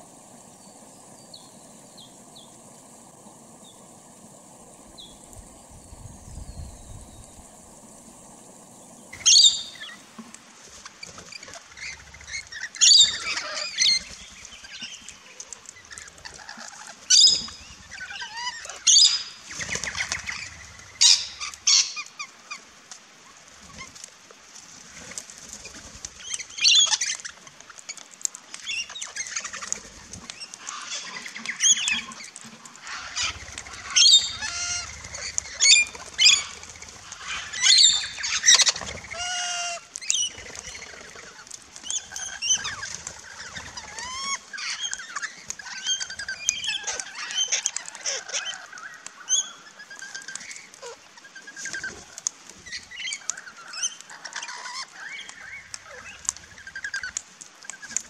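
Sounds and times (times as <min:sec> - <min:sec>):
parrots screeching and chattering: 0:09.2 - 0:09.9, 0:11.0 - 0:14.1, 0:15.7 - 0:22.2, 0:30.6 - 0:51.0, 0:52.6 - 0:57.9
wing flaps: 0:32.9 - 0:39.2.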